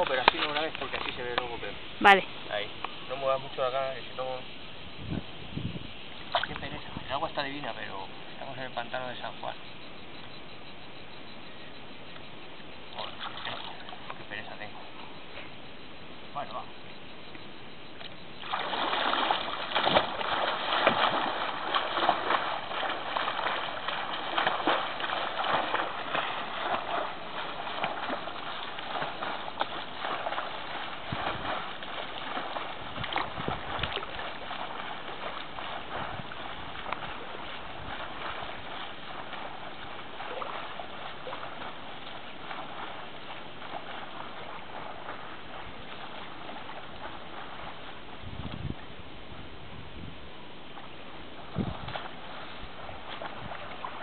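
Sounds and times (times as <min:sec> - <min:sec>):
swimmer splashing in water: 0:18.1 - 0:48.0.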